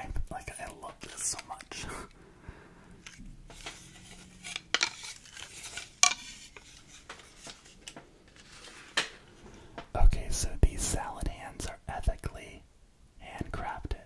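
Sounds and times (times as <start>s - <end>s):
soft rubbing and handling: 3.0s - 10.0s
wooden clacks: 6.0s - 7.3s.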